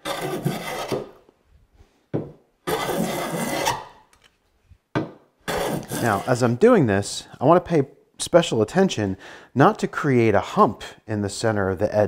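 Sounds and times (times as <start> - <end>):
hand plane shaving wood: 0.0 - 1.1, 2.7 - 3.9, 5.5 - 6.5.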